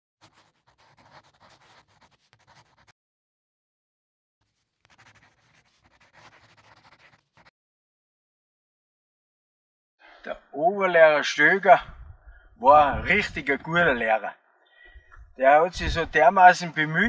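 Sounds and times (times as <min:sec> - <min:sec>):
pen scratching on paper: 0:00.2 - 0:03.0, 0:04.4 - 0:07.5.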